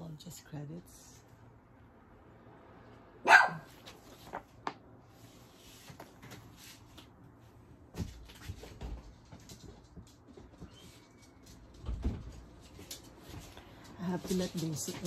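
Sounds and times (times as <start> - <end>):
dog barking: 3.2 - 3.7.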